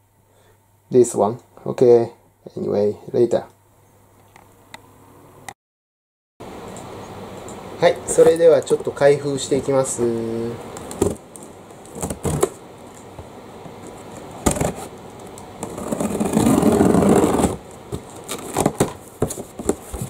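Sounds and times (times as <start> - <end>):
box cutter slitting packing tape: 15.6 - 19.8.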